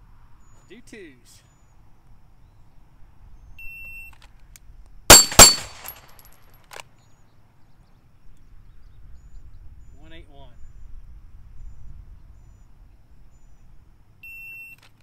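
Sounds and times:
handgun shots: 5.1s - 6.2s.

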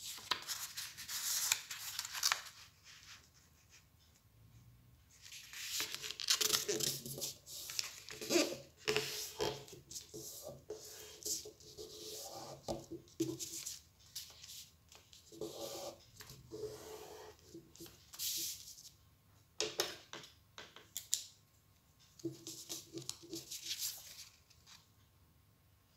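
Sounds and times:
paper being folded and creased: 0.0s - 3.8s, 5.2s - 10.5s, 23.0s - 24.8s.

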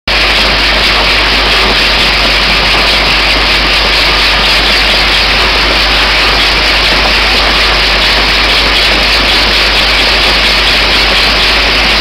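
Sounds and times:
constant low hum: 0.1s - 12.0s.

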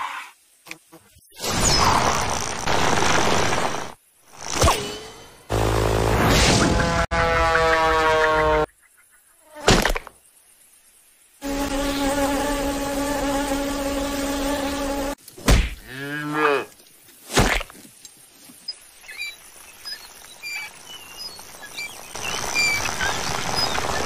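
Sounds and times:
fly buzzing: 11.4s - 16.7s.

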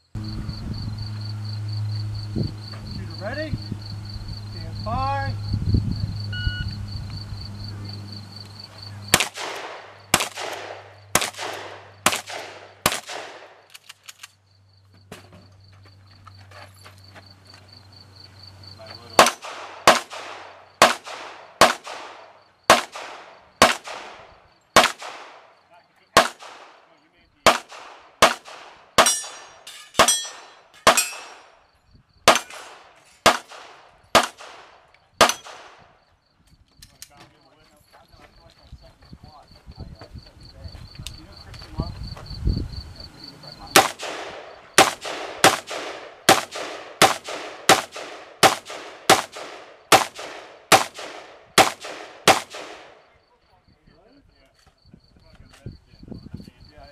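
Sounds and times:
gunshots with echo: 9.1s - 13.6s, 19.2s - 25.5s, 26.2s - 31.5s, 32.3s - 35.9s, 43.7s - 53.0s.

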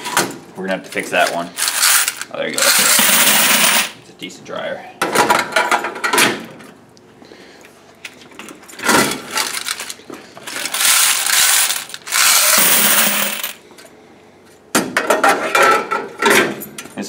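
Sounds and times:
coins jingling into metal bucket: 1.6s - 3.9s, 10.5s - 13.6s
coins clattering in metal box: 1.6s - 4.0s, 9.2s - 13.6s.

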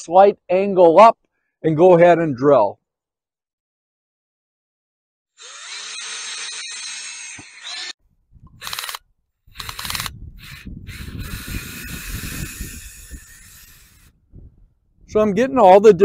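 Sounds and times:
cordless drill boring into wood: 5.4s - 8.0s, 8.6s - 14.2s.

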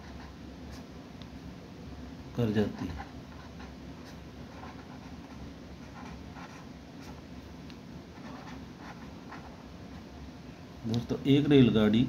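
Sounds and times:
low background hum: 0.0s - 12.0s
pen scratching on paper: 2.6s - 7.2s, 8.2s - 9.6s.

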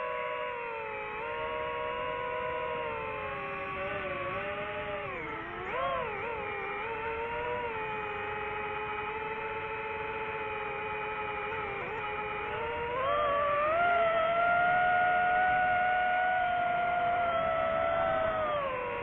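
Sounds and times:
drone propellers whining: 0.0s - 19.0s.

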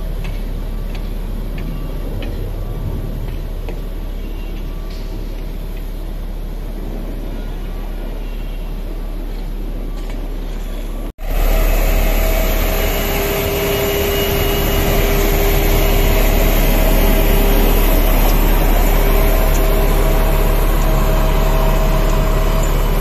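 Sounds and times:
compactor diesel engine rumbling: 0.0s - 23.0s
machine whine: 11.2s - 23.0s.

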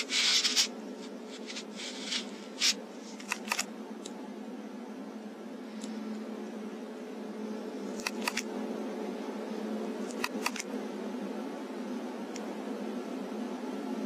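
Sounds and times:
handling rustles and clicks: 0.0s - 4.2s
low electrical hum: 0.0s - 14.0s.

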